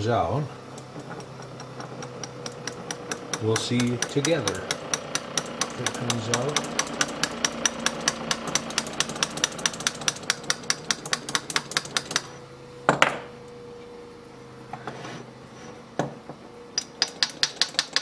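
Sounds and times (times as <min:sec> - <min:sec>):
small hammer tapping metal: 0:00.7 - 0:12.3, 0:16.8 - 0:18.0.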